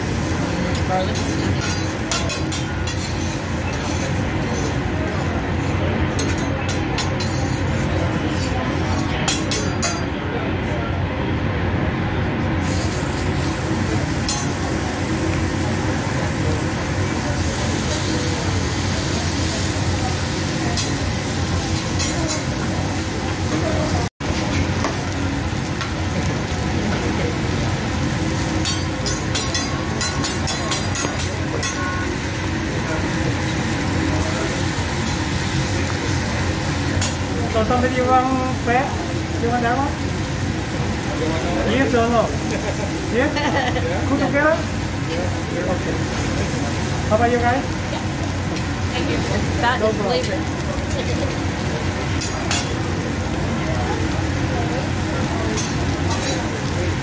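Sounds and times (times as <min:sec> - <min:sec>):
steaks sizzling on a griddle: 0:00.0 - 0:06.4, 0:12.6 - 0:57.0
metal spatula scraping griddle: 0:00.7 - 0:10.0.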